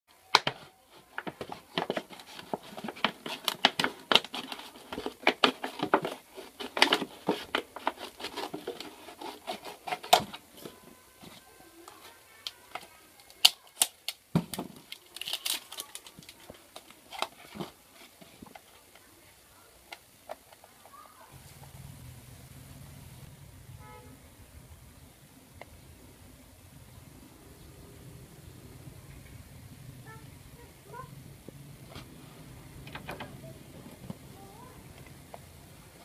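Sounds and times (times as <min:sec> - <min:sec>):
scissors cutting plastic bottle: 0:00.3 - 0:10.8, 0:12.4 - 0:18.7
plastic bottle handled: 0:00.3 - 0:19.1.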